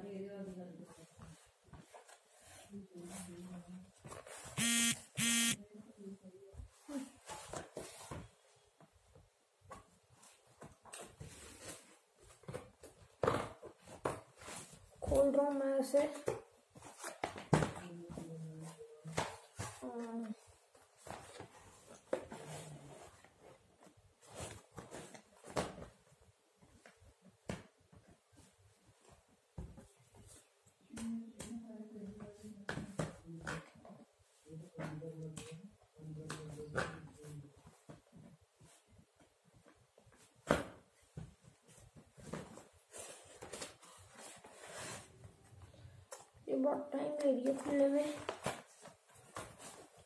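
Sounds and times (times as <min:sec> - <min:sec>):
loud buzzing beeps: 0:04.6 - 0:05.6.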